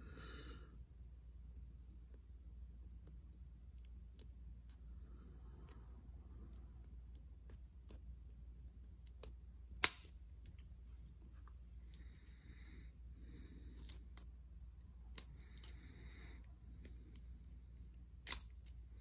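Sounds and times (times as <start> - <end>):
padlock opening with sharp click: 18.2 - 18.7.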